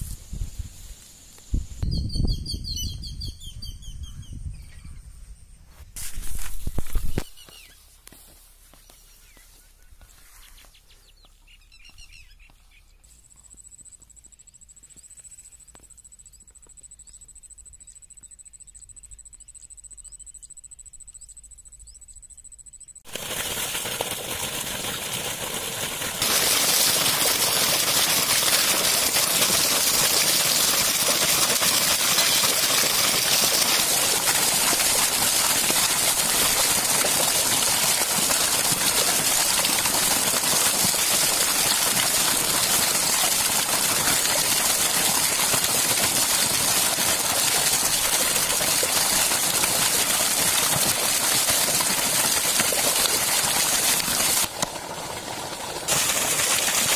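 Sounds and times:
water gushing from pipe: 0:23.1 - 0:56.9.

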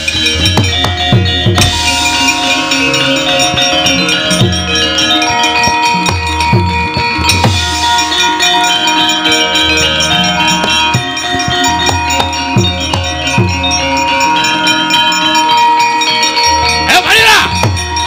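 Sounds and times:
hand drum strokes: 0:00.0 - 0:14.2
gongs: 0:00.0 - 0:18.0
metallophones ringing: 0:00.0 - 0:18.0.

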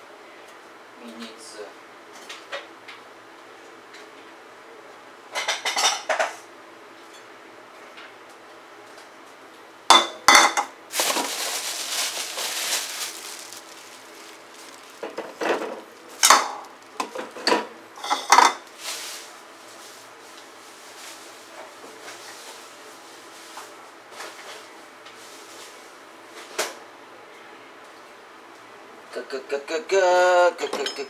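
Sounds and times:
dishes and utensils clinking: 0:15.0 - 0:18.6, 0:30.6 - 0:31.0.

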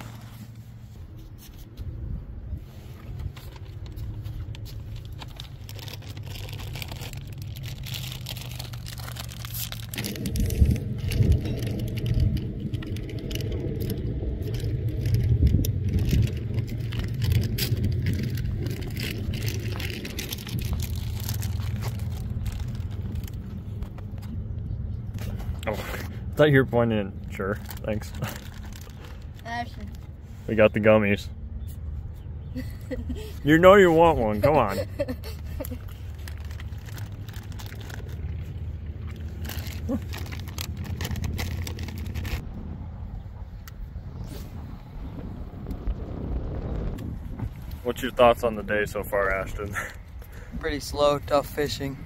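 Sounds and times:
wind buffeting microphone: 0:08.8 - 0:25.6, 0:33.3 - 0:52.0.

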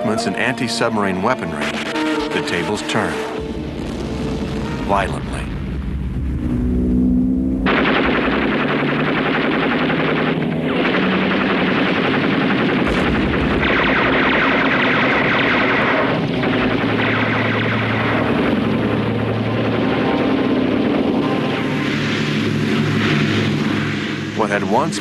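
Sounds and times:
rapid machine-gun fire: 0:07.6 - 0:23.8.

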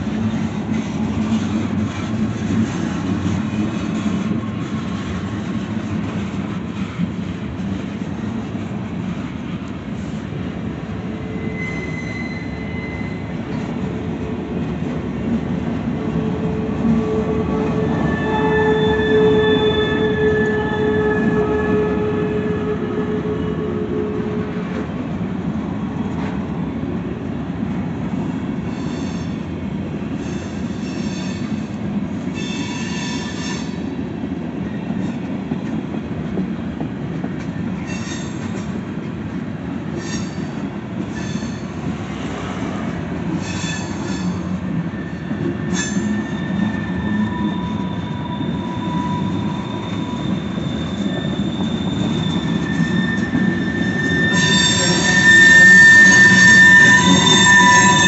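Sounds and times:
train wheels rumbling on rail: 0:00.0 - 0:58.0
high wheel squeals: 0:11.1 - 0:13.8, 0:16.9 - 0:24.6, 0:28.6 - 0:29.5, 0:30.2 - 0:33.9, 0:37.8 - 0:38.7, 0:39.9 - 0:42.3, 0:43.3 - 0:58.0.

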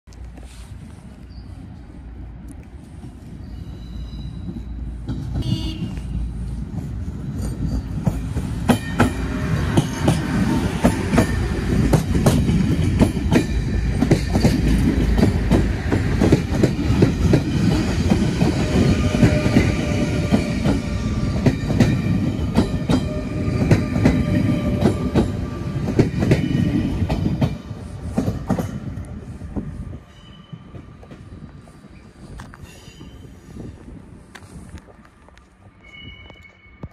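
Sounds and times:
train rumbling past: 0:00.2 - 0:36.9
train horn: 0:05.4 - 0:06.2
wheels clacking over rail joints: 0:06.7 - 0:28.9.

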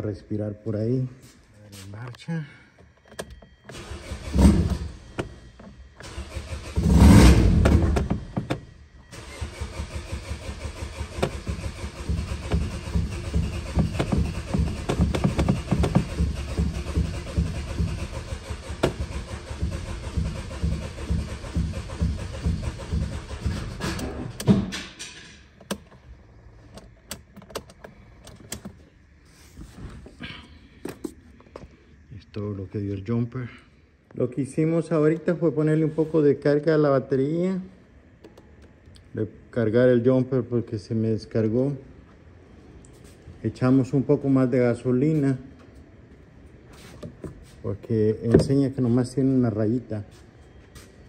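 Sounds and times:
car engine cranking: 0:03.0 - 0:24.9.

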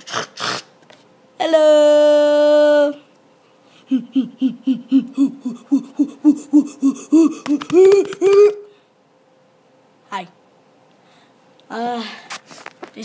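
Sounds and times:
boy making staccato vocal pulses: 0:03.8 - 0:08.7.

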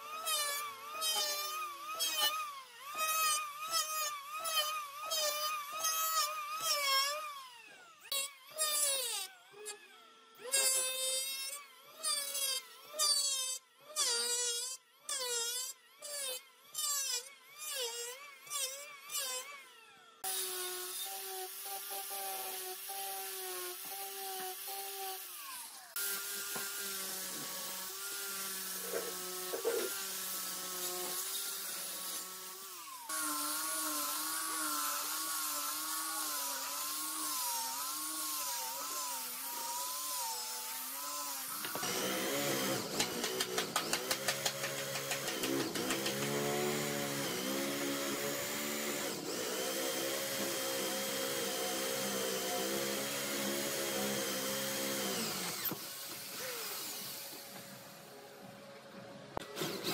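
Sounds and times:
angle grinder sanding wood: 0:00.0 - 0:09.3, 0:20.2 - 0:57.5
electric drill boring: 0:00.0 - 0:57.8, 0:59.4 - 0:59.9
electric hand planer cutting: 0:00.0 - 0:57.8, 0:59.4 - 0:59.9.

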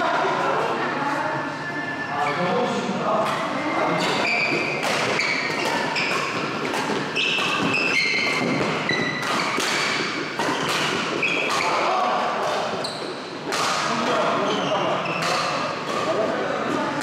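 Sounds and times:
rackets hitting shuttlecock: 0:03.2 - 0:14.3, 0:15.1 - 0:17.0
shoes squeaking on court floor: 0:03.4 - 0:13.4, 0:14.1 - 0:16.1.

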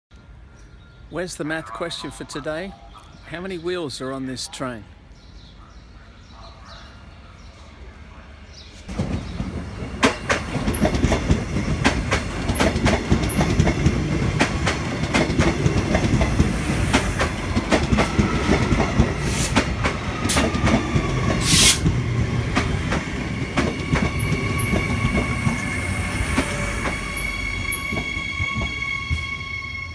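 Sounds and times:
electric train passing: 0:08.8 - 0:29.9
wheels clicking over track: 0:08.9 - 0:25.6
train squeal: 0:23.4 - 0:29.9.

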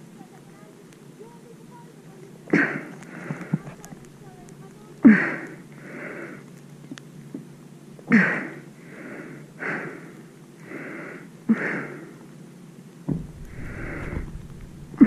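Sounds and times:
person gasping breaths: 0:05.0 - 0:06.4, 0:08.1 - 0:12.2, 0:13.5 - 0:15.0.

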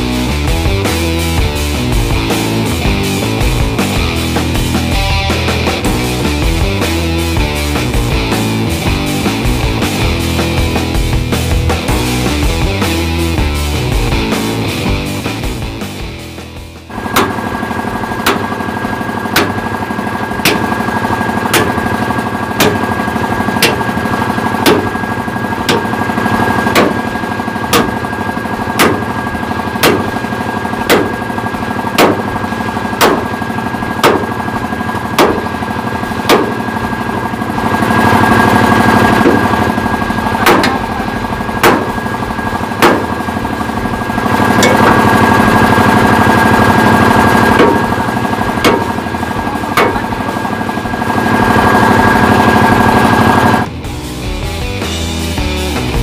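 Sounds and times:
steady machine drone: 0:00.0 - 0:56.0
sledgehammer clanging on steel: 0:22.6 - 0:22.9, 0:23.6 - 0:23.9, 0:27.7 - 0:28.0, 0:40.4 - 0:41.0, 0:44.6 - 0:45.0, 0:49.6 - 0:50.4.

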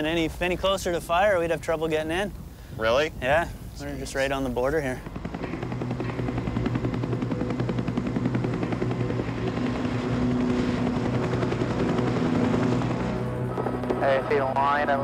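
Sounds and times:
helicopter engine hum: 0:01.8 - 0:15.0
helicopter rotor chop: 0:03.1 - 0:15.0.

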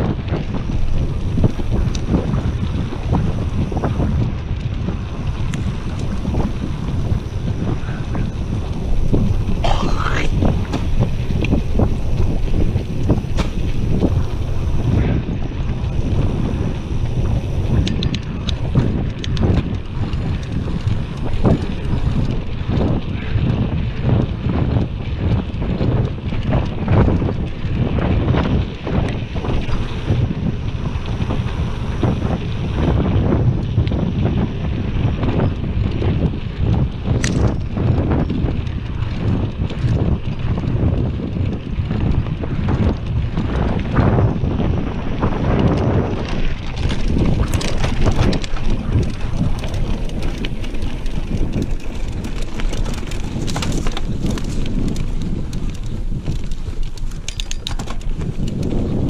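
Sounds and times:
bike knocks and rattles: 0:00.0 - 0:59.0
wind buffeting microphone: 0:00.0 - 0:59.0
tyre rumble on dirt: 0:04.8 - 0:15.2, 0:45.2 - 0:59.0.

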